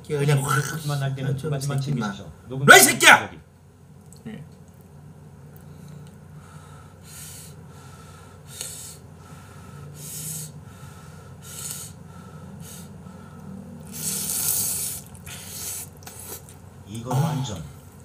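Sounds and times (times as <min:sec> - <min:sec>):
noodles being slurped: 0:13.8 - 0:16.6.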